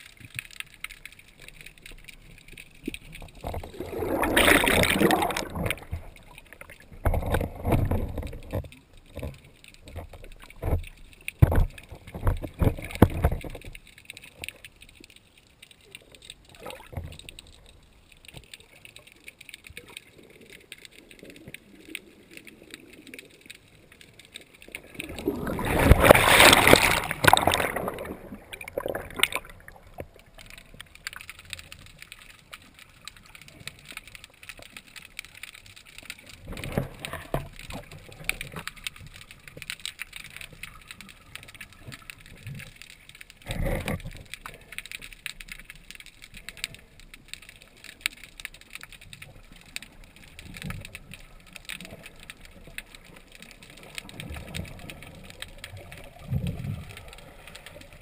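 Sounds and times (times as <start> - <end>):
underwater rushing gurgling water: 0.0 - 8.6, 16.4 - 18.2, 19.8 - 35.2, 35.9 - 58.0
underwater knocks and thumps: 2.5 - 13.8, 25.0 - 30.5.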